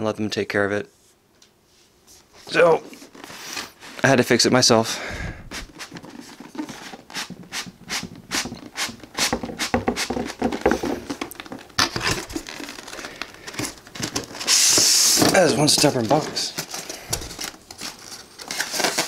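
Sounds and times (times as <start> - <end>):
styrofoam sliding scrape: 5.5 - 10.4, 11.9 - 19.0.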